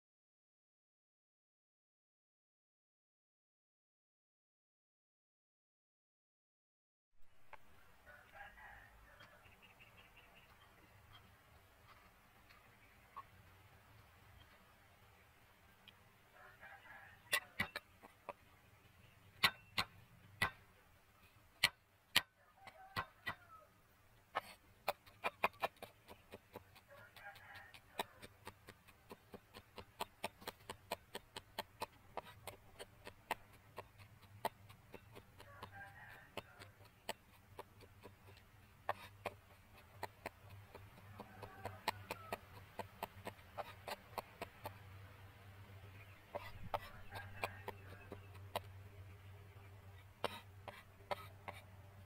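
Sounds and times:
chickens clucking: 7.5 - 14.8, 15.8 - 52.0
cleaver chopping on wooden block: 17.3 - 17.9, 19.4 - 20.6, 24.8 - 44.8.

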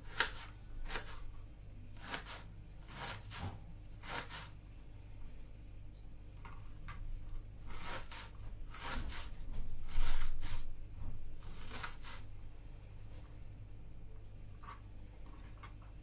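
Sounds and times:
rustling scrapes: 7.7 - 10.7.

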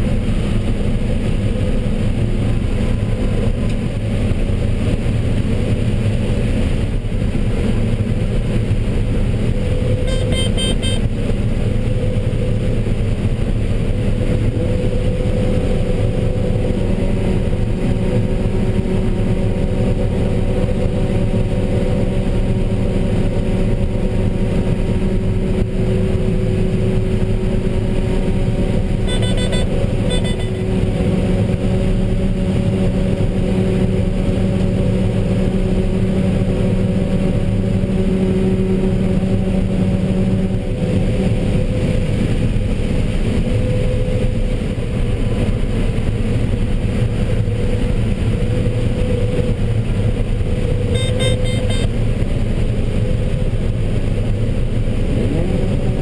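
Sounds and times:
combine harvester droning: 0.0 - 56.0
high-pitched pulses: 10.1 - 11.0, 29.1 - 30.7, 50.9 - 51.9.

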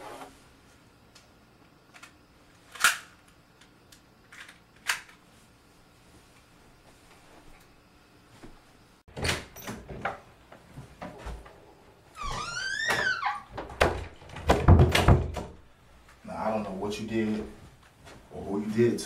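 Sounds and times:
door hinge squeak: 12.2 - 13.5
door shutting with heavy thuds: 12.2 - 15.6.

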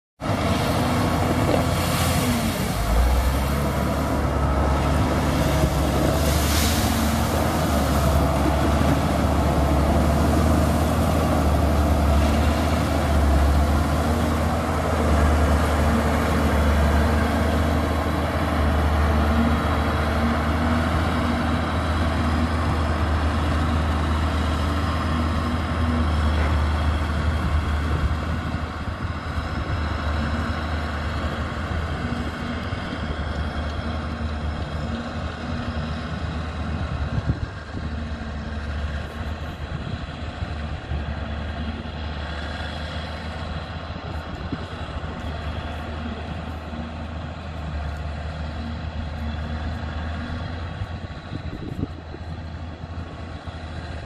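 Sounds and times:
diesel grader engine running: 0.2 - 54.0
blade pushing gravel: 0.6 - 17.2.

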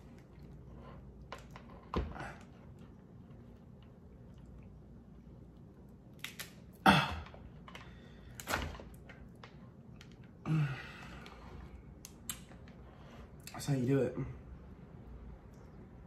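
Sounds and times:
lobster shell cracking: 6.1 - 6.8
person grunting: 6.8 - 7.4, 10.4 - 11.0.

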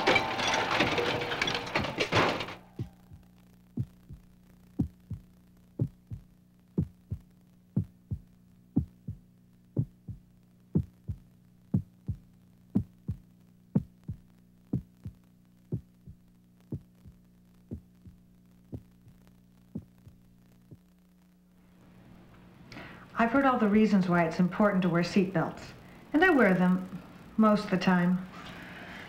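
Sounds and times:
steady low hum: 0.0 - 29.0
heartbeat thumps: 2.8 - 20.9.

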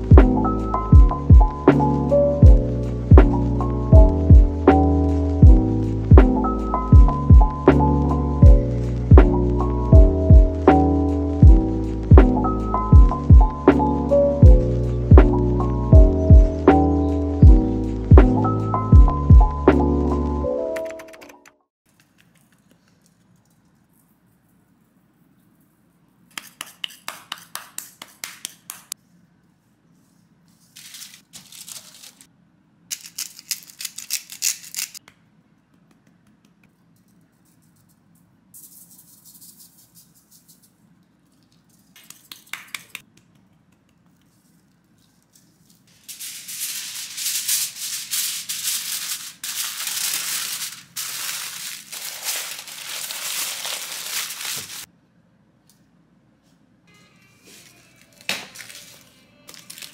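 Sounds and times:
aluminium foil crinkling: 30.6 - 32.3, 32.9 - 35.0, 44.1 - 54.9, 57.6 - 59.9
spice shakers rattling: 32.9 - 35.0, 36.8 - 43.0, 44.0 - 54.9.

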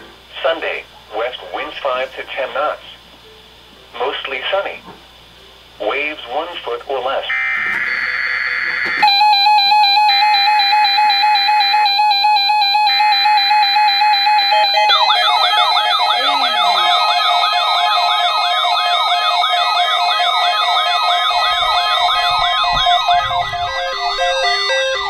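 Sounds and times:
higher tone switching on and off: 7.3 - 25.0
steady alert tone: 7.3 - 25.0
warbling siren-like alarm sweeps: 7.3 - 25.0.

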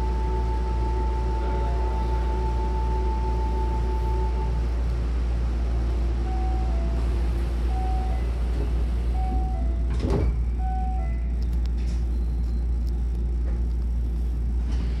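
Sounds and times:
steady low hum: 0.0 - 15.0
train doors shutting thud: 8.5 - 10.4.

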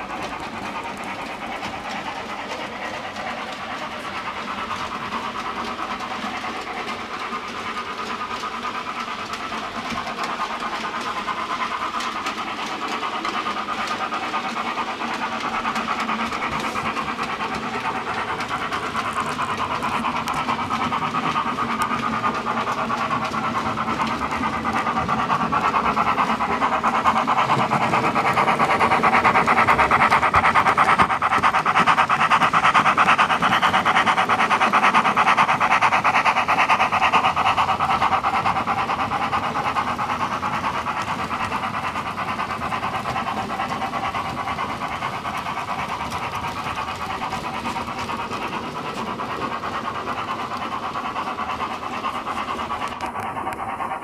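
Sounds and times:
model steam locomotive chuffing: 0.0 - 54.0.

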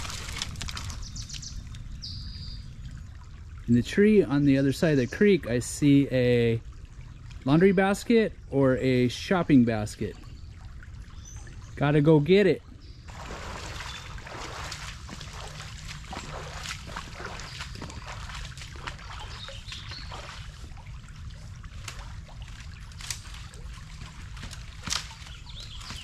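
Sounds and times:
brush snapping underfoot: 0.0 - 1.8, 21.8 - 26.0
creek water trickling: 0.0 - 26.0.

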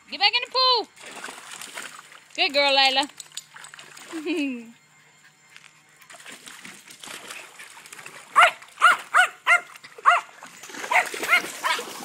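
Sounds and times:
dog barking: 8.4 - 10.3, 10.9 - 11.9.

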